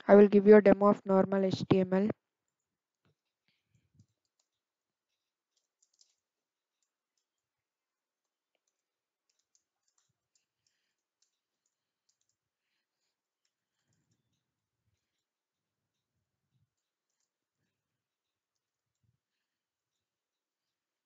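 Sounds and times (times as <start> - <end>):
keyboard keys typing: 0.1 - 2.1, 5.6 - 6.2, 8.6 - 12.4.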